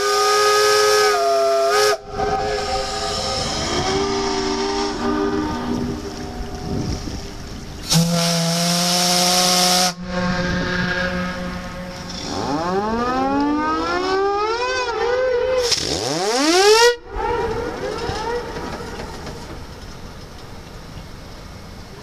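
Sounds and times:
steam whistle blowing: 0.0s - 14.9s.

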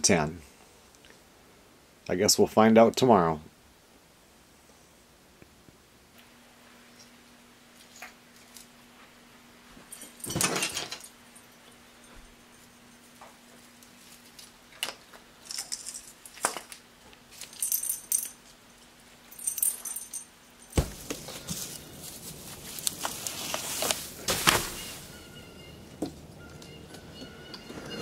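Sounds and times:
ornaments clinking: 9.8s - 13.2s, 13.8s - 28.0s
branches rustling: 13.4s - 17.6s, 20.8s - 27.1s
tree thudding onto snow: 20.8s - 25.3s.

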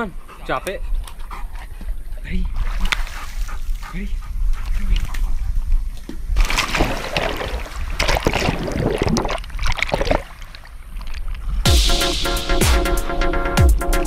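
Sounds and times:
water sloshing and churning: 4.6s - 11.6s
dog splashing into pool: 6.4s - 10.6s.

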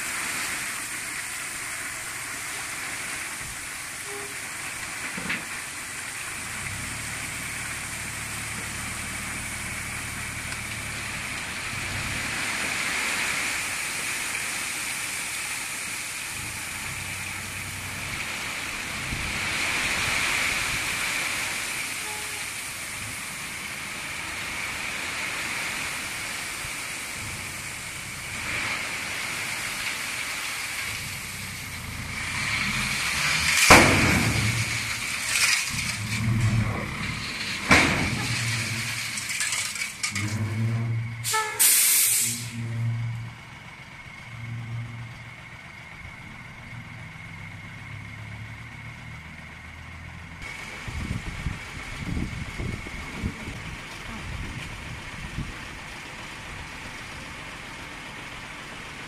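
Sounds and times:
diesel engine hum: 0.0s - 59.0s
crushed stone pouring: 30.8s - 40.7s
loud bangs: 33.0s - 40.7s.

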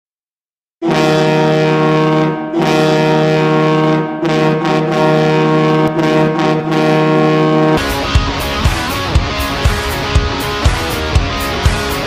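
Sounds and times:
goal horn blast: 0.8s - 12.0s
electric guitar and drums song: 7.8s - 12.0s.

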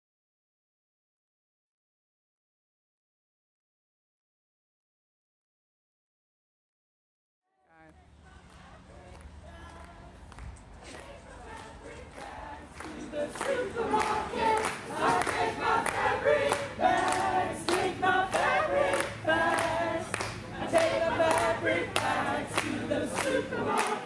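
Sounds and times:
clapping in time: 8.4s - 24.0s
group singing: 8.4s - 24.0s.

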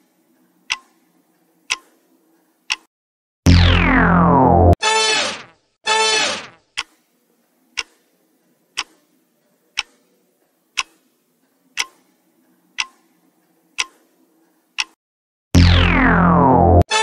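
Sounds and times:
clock ticking: 0.7s - 1.0s, 1.7s - 1.9s, 2.7s - 2.9s, 6.8s - 7.1s, 7.7s - 8.1s, 8.7s - 9.1s, 9.7s - 11.1s, 11.7s - 14.1s, 14.8s - 15.0s.

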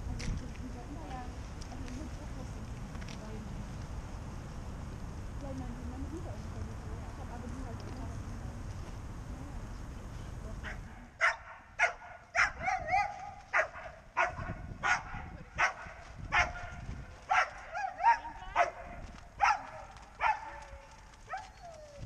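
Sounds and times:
dog barking: 10.6s - 20.7s
dog whining yelps: 11.2s - 15.1s, 21.3s - 22.0s.

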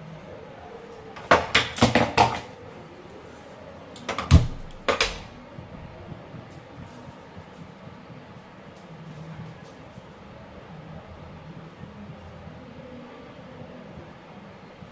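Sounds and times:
kitchen clinks and knocks: 1.2s - 2.5s
heavy thud: 4.1s - 5.4s.

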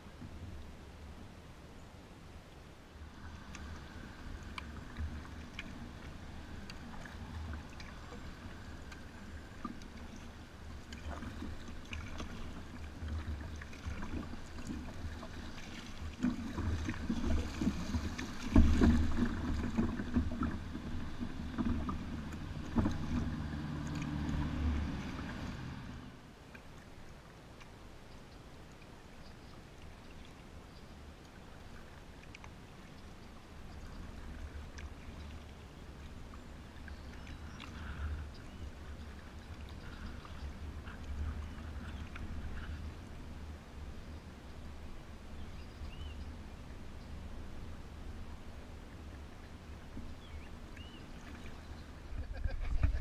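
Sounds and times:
water slapping against kayak hull: 10.8s - 25.6s.

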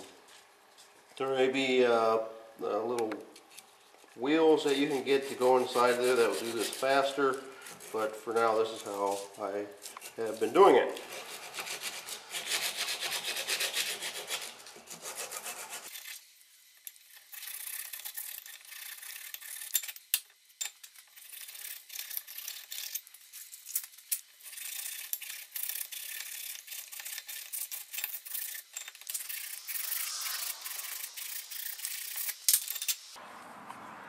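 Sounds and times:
sandpaper rasping inside metal bore: 4.4s - 16.2s, 17.1s - 19.8s, 21.0s - 23.5s, 24.4s - 32.5s.

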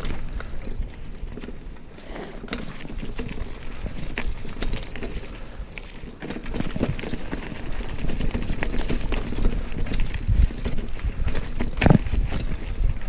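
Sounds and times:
bike clicks and rattles: 0.0s - 13.0s
wind rumble on microphone: 2.6s - 13.0s.

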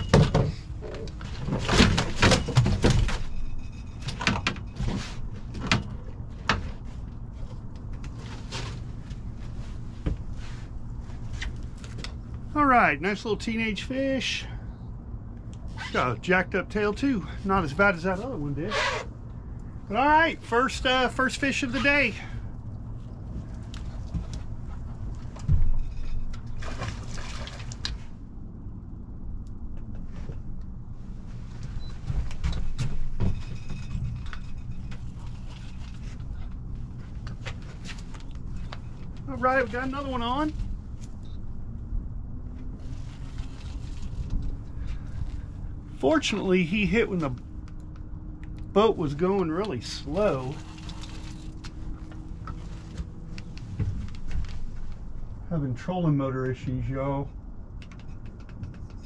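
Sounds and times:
low rumble: 22.2s - 56.6s
water splashing: 26.4s - 28.0s.

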